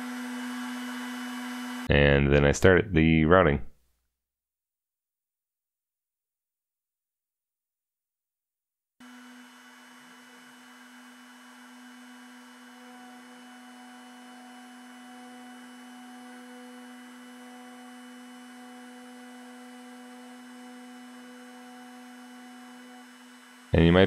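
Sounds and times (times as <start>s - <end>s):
cnc router spindle humming: 0.0s - 1.9s, 9.0s - 24.0s.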